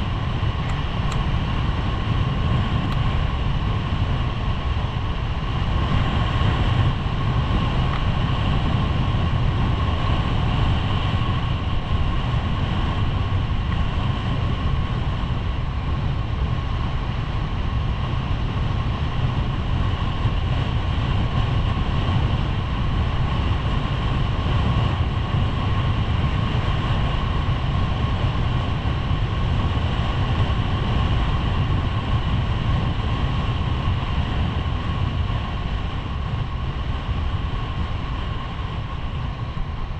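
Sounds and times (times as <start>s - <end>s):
wind noise on microphone: 0.0s - 39.9s.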